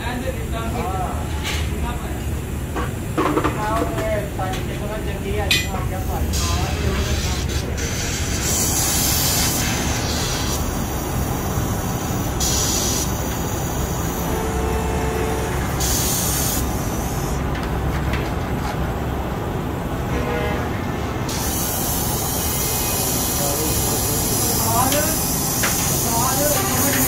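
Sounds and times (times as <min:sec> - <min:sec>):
spray jet hissing: 0:05.9 - 0:17.4, 0:21.3 - 0:27.0.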